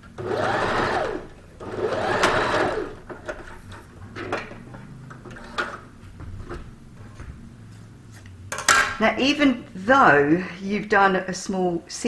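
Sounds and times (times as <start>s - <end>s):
sewing machine stitching: 0.2s - 3.0s.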